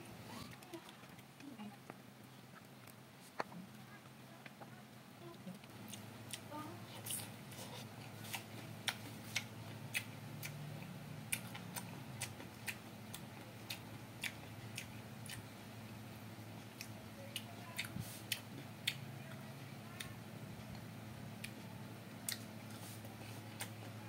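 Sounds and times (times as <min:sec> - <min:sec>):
faint low hum: 0:00.0 - 0:24.0
person chewing crunchy food: 0:05.6 - 0:15.4, 0:22.2 - 0:24.0.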